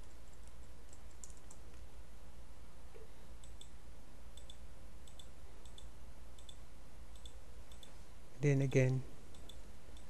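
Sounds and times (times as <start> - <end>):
computer mouse clicking: 0.0 - 1.8, 3.4 - 3.8, 4.4 - 8.0, 9.3 - 10.0
steady low hum: 0.0 - 10.0.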